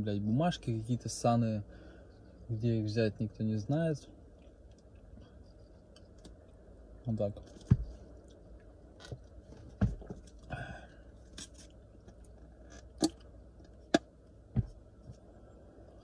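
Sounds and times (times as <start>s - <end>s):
light handling clicks and knocks: 7.4s - 10.5s, 11.2s - 15.3s.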